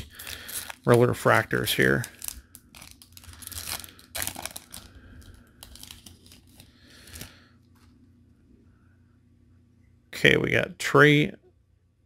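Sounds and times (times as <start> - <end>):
foil wrapper tearing and crinkling: 0.0 - 7.4.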